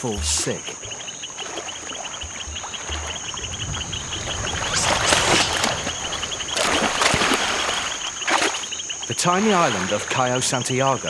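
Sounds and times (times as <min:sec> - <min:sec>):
insects chirping: 0:00.0 - 0:11.0
monkeys splashing in water: 0:01.3 - 0:08.8.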